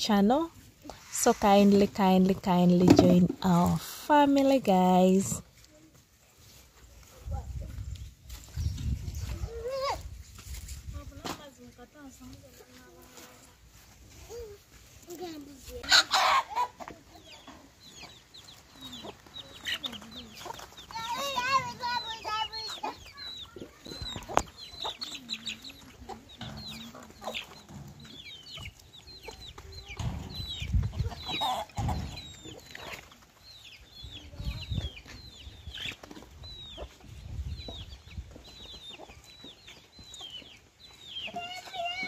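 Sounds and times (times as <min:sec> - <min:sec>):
chickens clucking: 0:12.2 - 0:42.0.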